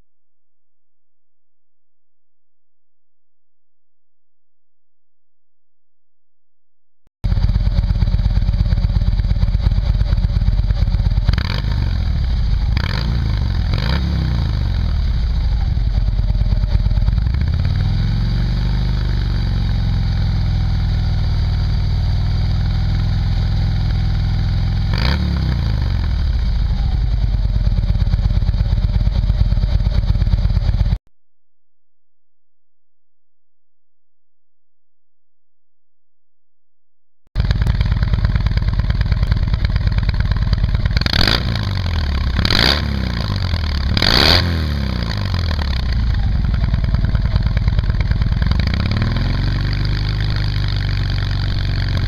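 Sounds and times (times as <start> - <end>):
motorcycle engine idling and revving: 7.2 - 31.0, 37.4 - 52.0.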